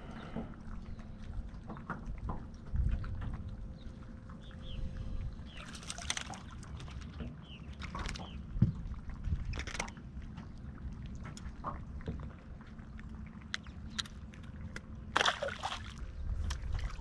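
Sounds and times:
water sloshing: 0.0 - 17.0
fish splashing into water: 5.6 - 7.1, 15.1 - 17.0.

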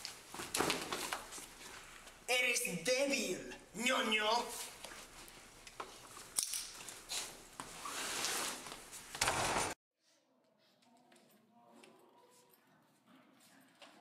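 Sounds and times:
rustling and knocks of scuffle: 0.0 - 1.8.

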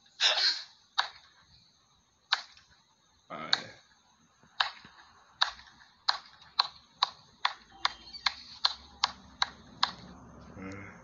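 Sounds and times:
person clapping slowly: 5.4 - 10.1.

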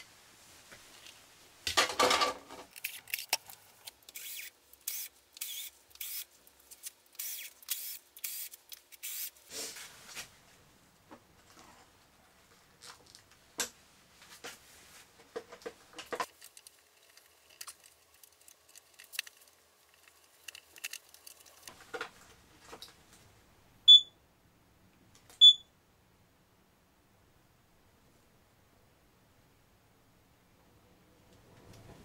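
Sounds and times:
clicks and knocks of parts handled: 1.0 - 9.0, 15.4 - 23.0
short high beeps: 23.9 - 24.1, 25.4 - 25.6.

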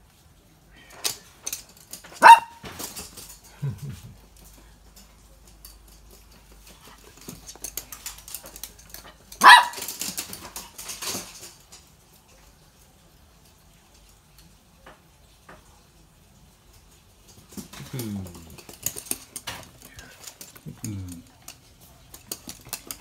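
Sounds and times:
claws clicking on hard floor: 0.9 - 11.9, 16.8 - 23.0
small dog barking: 2.2 - 2.7, 9.4 - 9.9.

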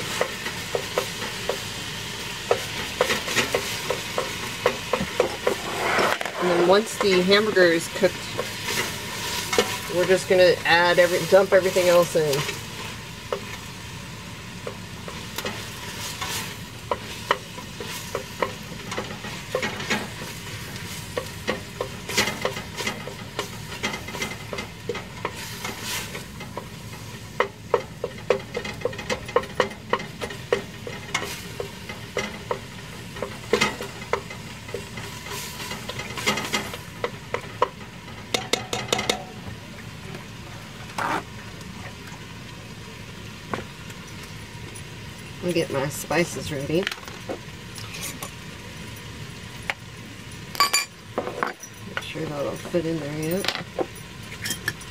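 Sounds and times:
ground beef sizzling: 0.0 - 54.9
utensil scraping a pot: 4.9 - 12.5, 40.8 - 41.3.

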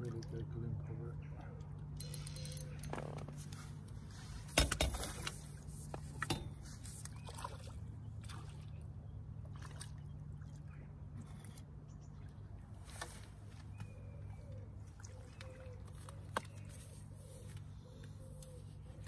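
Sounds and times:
water splashing and trickling: 0.0 - 0.7, 3.4 - 13.6, 14.4 - 17.1.

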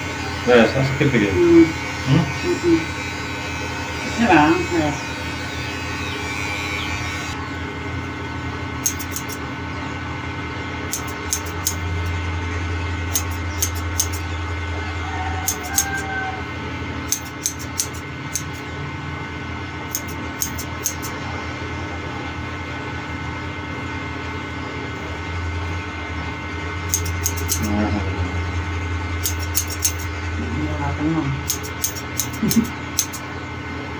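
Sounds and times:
steady hum: 6.2 - 14.7, 23.6 - 33.9
scissors snipping hair: 8.8 - 9.4, 10.9 - 12.2, 13.1 - 14.3, 15.5 - 16.1, 17.1 - 18.7, 19.9 - 21.2, 26.9 - 27.8, 29.2 - 30.1, 31.4 - 33.3.

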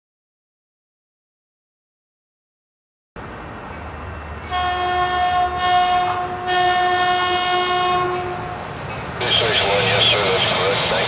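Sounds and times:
low train rumble: 3.2 - 11.0
train air horn blasts: 4.4 - 8.6.

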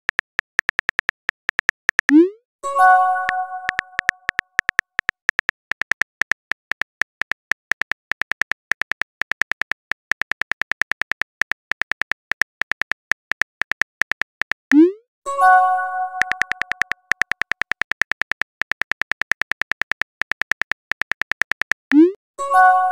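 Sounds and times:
keyboard tap clicks: 0.1 - 2.2, 3.3 - 14.8, 16.2 - 22.1
chiming message alert: 2.1 - 4.1.

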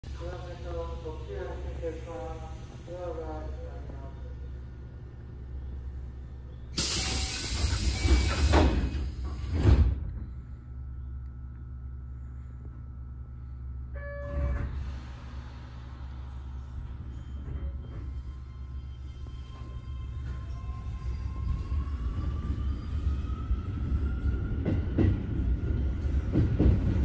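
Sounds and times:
train humming: 0.0 - 27.0
air hiss of doors closing: 6.8 - 10.0
brief tone: 13.9 - 14.9, 17.0 - 21.7.

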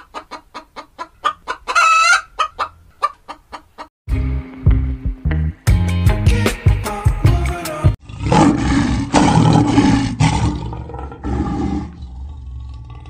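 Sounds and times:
lion roaring and growling: 8.0 - 13.0.

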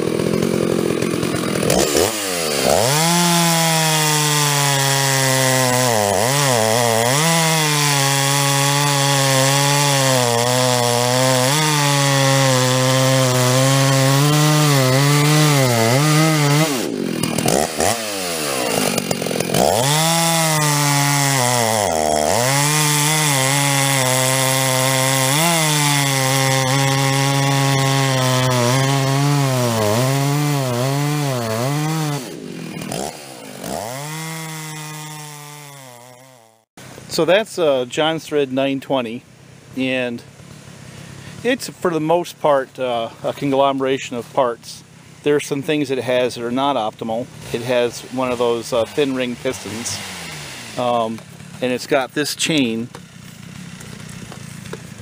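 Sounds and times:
chainsaw cutting through log: 0.0 - 55.0.

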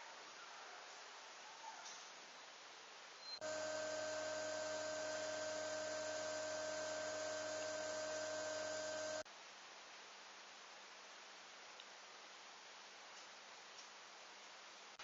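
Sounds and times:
steady multi-pitch hum: 3.4 - 9.3.

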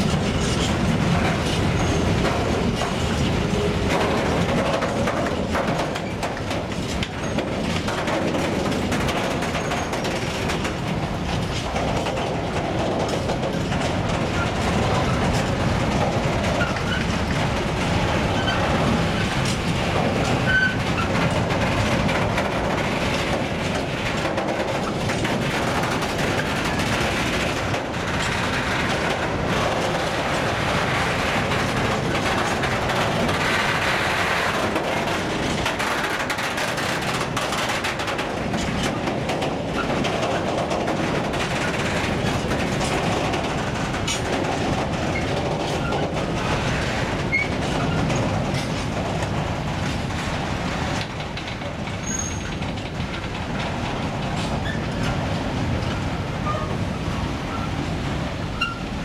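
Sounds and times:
train wheels rumbling on rails: 0.0 - 59.0
high wheel squeaks: 52.0 - 52.6, 58.6 - 58.9.

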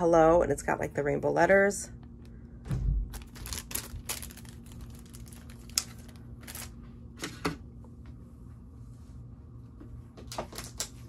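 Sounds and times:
plastic packaging crinkling: 3.1 - 6.8.

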